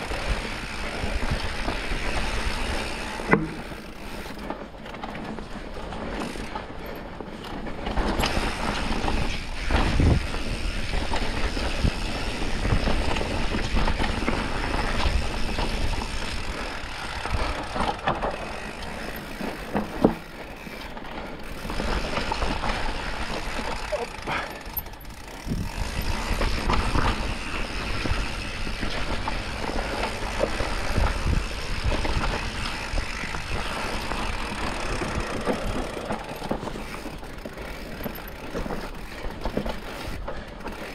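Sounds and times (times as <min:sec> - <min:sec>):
bike rattling: 0:00.0 - 0:40.9
bike tyres rushing on dirt: 0:00.0 - 0:40.9
bike knocking over bumps: 0:01.6 - 0:05.6, 0:17.1 - 0:40.9.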